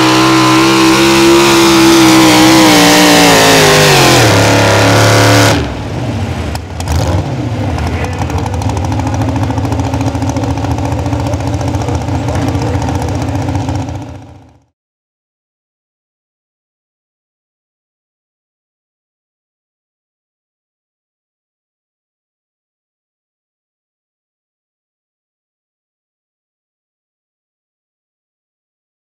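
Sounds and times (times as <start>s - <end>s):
truck engine running at high revs: 0.0s - 14.7s
engine idling: 5.8s - 14.7s.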